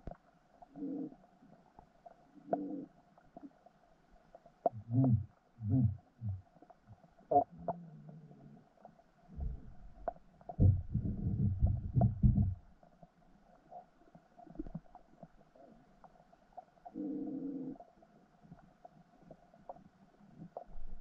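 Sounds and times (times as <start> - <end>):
underwater low rumbles: 0.0 - 21.0
deep underwater thuds: 9.3 - 12.7.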